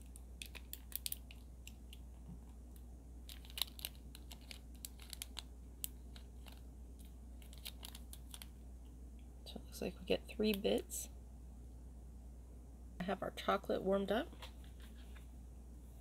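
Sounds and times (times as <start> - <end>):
wrapper crinkling: 0.0 - 1.4, 3.2 - 8.6.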